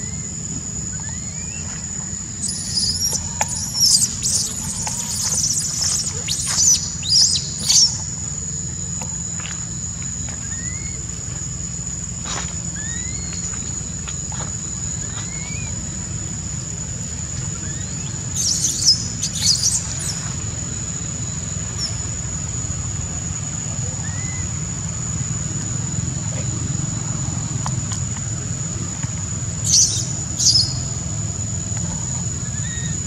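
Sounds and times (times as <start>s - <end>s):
rising bird chirps: 0.0s - 8.2s, 17.6s - 20.3s
high insect drone: 0.0s - 33.0s
infant monkey squealing: 2.4s - 8.1s, 17.6s - 20.2s, 29.7s - 30.8s.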